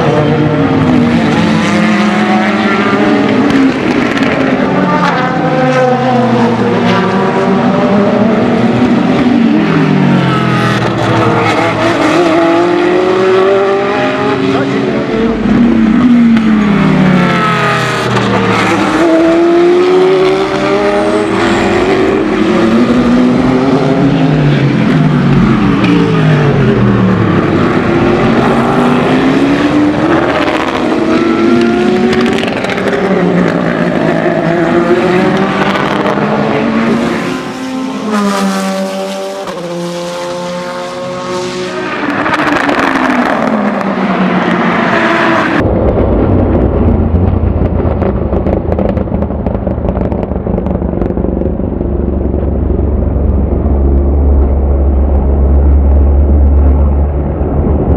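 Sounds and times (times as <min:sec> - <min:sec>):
car accelerating hard: 0:00.0 - 0:45.6
race cars passing: 0:00.0 - 0:57.9.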